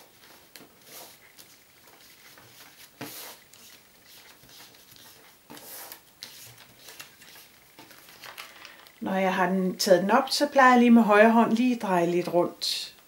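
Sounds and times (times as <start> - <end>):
paper rustling: 0.0 - 9.0.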